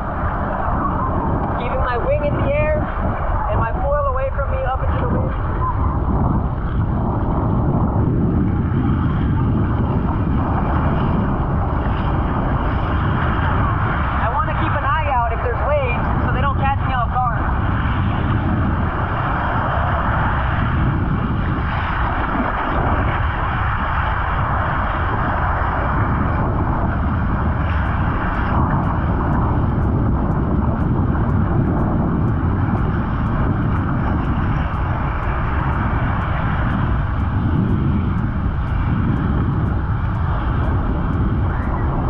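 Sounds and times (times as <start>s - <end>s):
wind blowing across microphone: 0.0s - 42.0s
surf washing in shallows: 9.2s - 42.0s.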